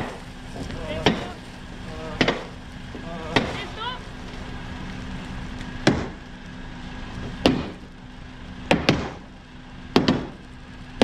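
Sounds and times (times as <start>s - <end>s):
hammer striking iron: 8.7s - 9.2s, 9.9s - 10.4s.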